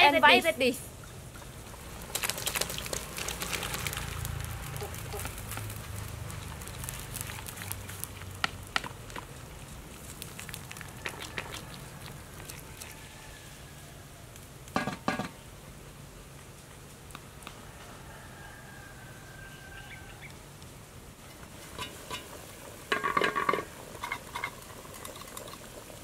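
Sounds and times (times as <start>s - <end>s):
fire crackling: 0.1s - 17.7s, 20.2s - 26.0s
pot of broth bubbling: 1.0s - 13.4s, 21.3s - 26.0s.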